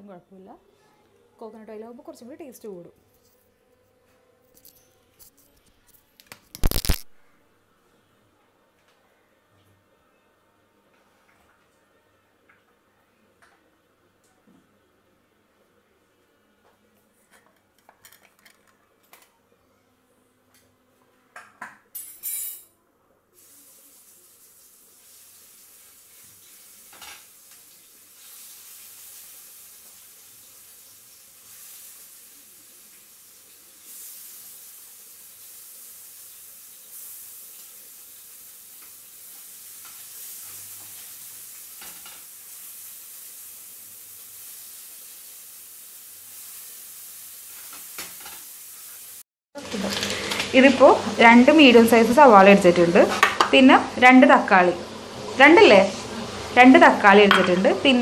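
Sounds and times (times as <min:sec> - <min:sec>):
chicken sizzling in hot oil: 0:06.6 - 0:07.0, 0:23.4 - 0:58.0.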